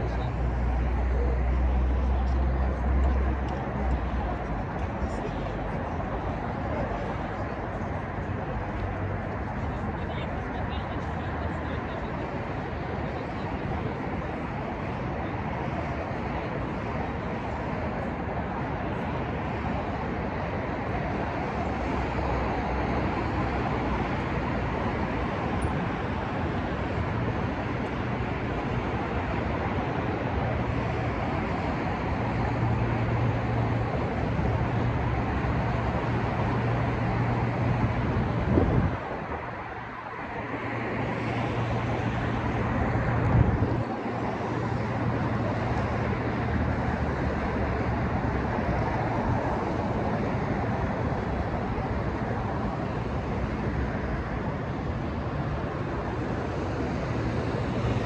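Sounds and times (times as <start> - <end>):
low engine hum: 0.0 - 58.0
passing vehicles: 0.0 - 58.0.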